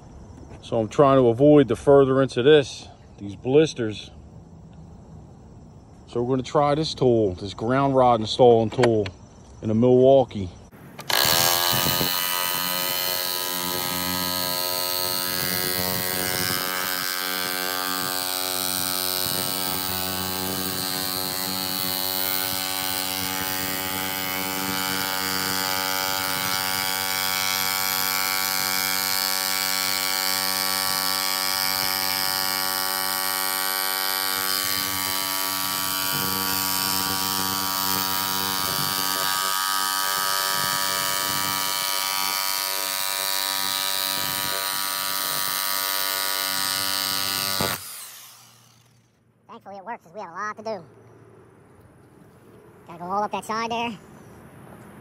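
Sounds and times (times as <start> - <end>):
hammer drill pounding: 11.0 - 49.2.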